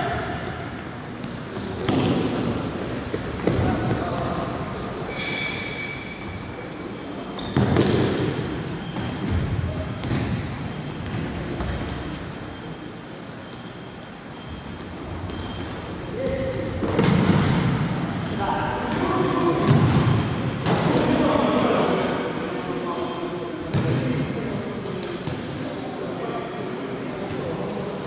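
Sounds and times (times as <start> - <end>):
shoes squeaking on floor: 0.8 - 2.1, 3.0 - 8.0, 8.6 - 16.2.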